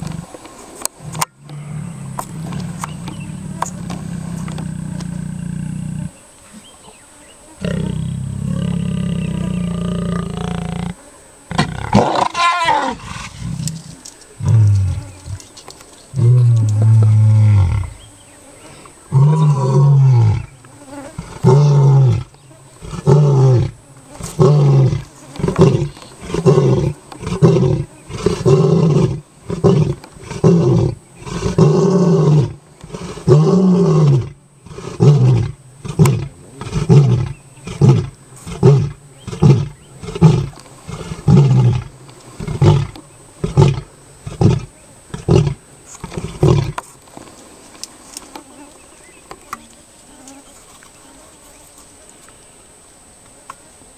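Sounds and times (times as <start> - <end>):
lion grunting roars: 1.0 - 6.2, 7.6 - 15.4
lion roaring: 1.0 - 6.2, 7.6 - 15.4, 21.2 - 46.8.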